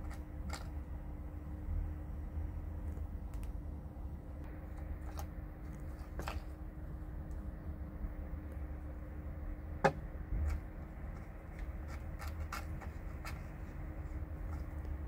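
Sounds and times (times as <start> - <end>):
low background rumble: 0.0 - 15.0
cat licking and eating: 10.2 - 15.0.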